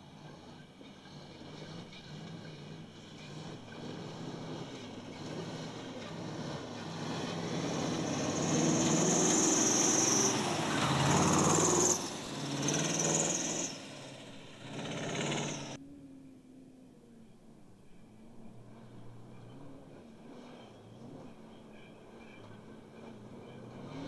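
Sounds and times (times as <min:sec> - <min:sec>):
truck diesel engine revving: 0:00.0 - 0:15.8, 0:18.7 - 0:24.0
tyres hissing on rough ground: 0:01.2 - 0:15.8.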